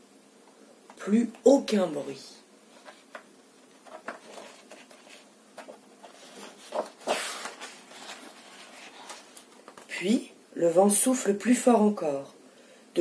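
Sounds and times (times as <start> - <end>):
paper page rustling: 2.7 - 9.9.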